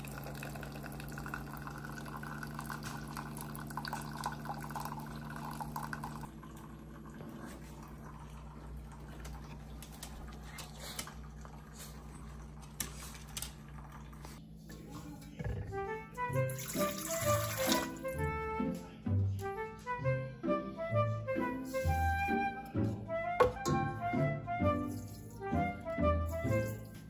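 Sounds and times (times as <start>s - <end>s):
coffee pouring into mug: 0.0s - 10.3s, 16.5s - 18.1s
coffee maker pump humming: 0.0s - 14.4s.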